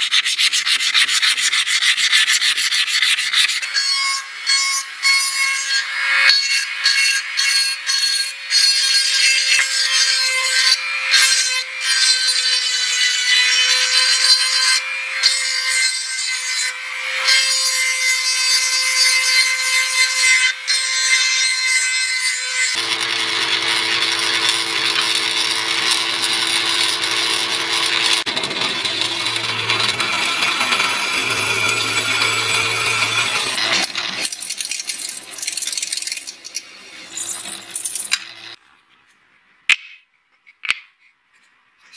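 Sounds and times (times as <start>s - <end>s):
rotary tool grinding metal: 0.0s - 38.6s
drill press humming: 22.8s - 35.7s.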